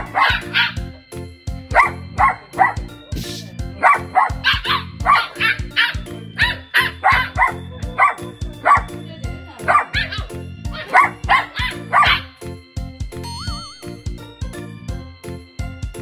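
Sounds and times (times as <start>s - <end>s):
dog barking sharply: 0.0s - 0.8s, 1.7s - 2.8s, 3.8s - 8.9s, 9.7s - 10.3s, 10.9s - 12.3s
background music: 0.0s - 16.0s.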